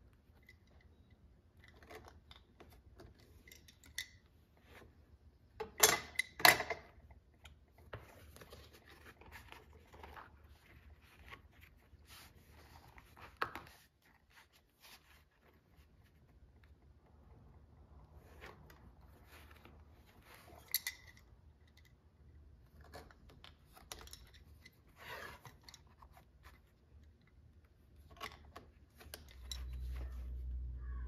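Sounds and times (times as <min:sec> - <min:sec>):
leather rustling and scraping: 0:24.8 - 0:26.7.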